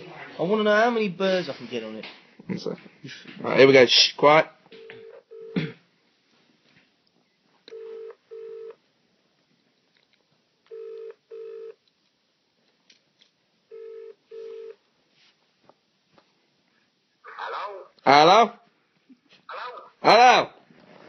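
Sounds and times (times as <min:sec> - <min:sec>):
telephone ringing tone: 0:04.8 - 0:05.6, 0:07.7 - 0:08.8, 0:10.7 - 0:11.8, 0:13.7 - 0:14.8.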